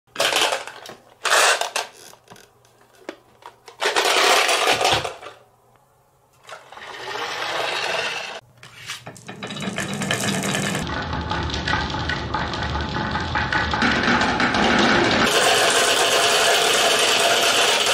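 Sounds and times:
marbles rolling down wooden track: 0:09.0 - 0:17.9.

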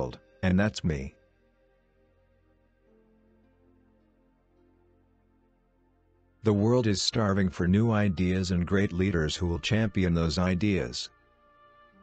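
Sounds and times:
faint music with held notes: 0:00.0 - 0:12.0.

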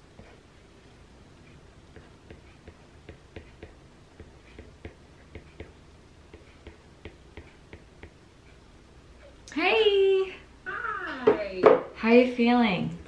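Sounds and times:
stylus tapping on glass screen: 0:02.0 - 0:08.2.

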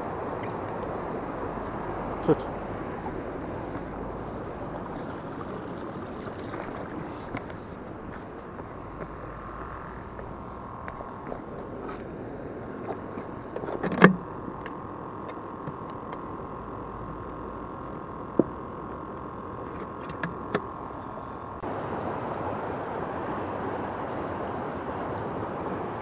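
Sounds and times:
river water rushing: 0:00.0 - 0:15.2, 0:21.6 - 0:26.0
air pump humming: 0:00.0 - 0:21.7.

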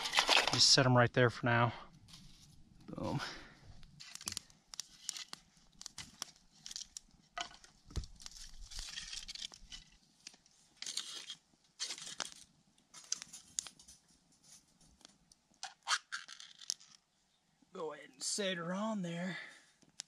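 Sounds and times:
packaging crinkling and tearing: 0:04.0 - 0:07.1, 0:08.0 - 0:10.0, 0:10.8 - 0:13.7.

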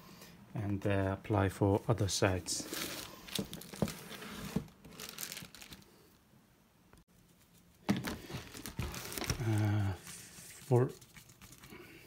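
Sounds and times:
plastic sheet crinkling: 0:02.6 - 0:06.0, 0:07.3 - 0:11.8.

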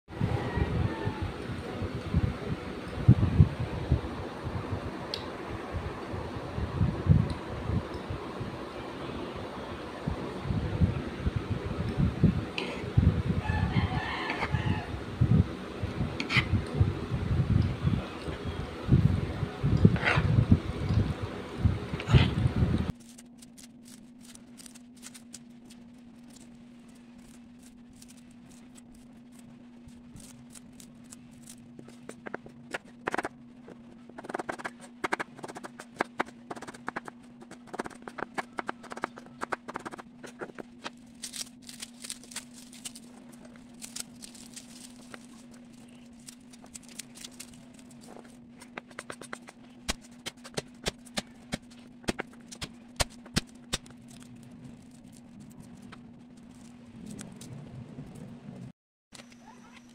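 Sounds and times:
steady low hum: 0:00.1 - 0:59.9
scraping and crunching: 0:22.0 - 0:57.6.

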